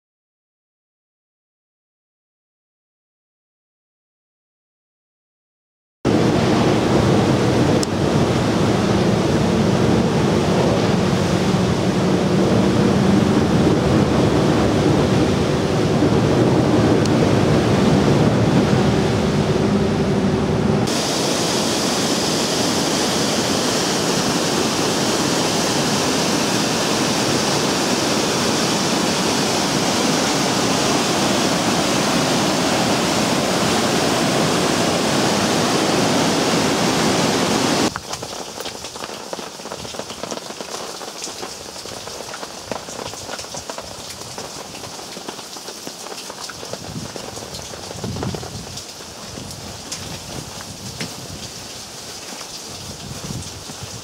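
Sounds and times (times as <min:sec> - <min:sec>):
steady rain falling: 0:06.1 - 0:18.9, 0:20.8 - 0:54.0
bus engine hum: 0:06.1 - 0:37.9
heavy rain on bus: 0:06.1 - 0:54.0
whitewater torrent rushing: 0:06.1 - 0:54.0.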